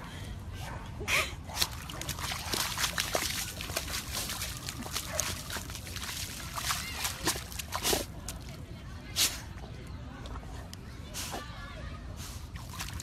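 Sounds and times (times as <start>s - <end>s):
dog splashing in muddy water: 1.5s - 8.6s, 12.5s - 13.0s.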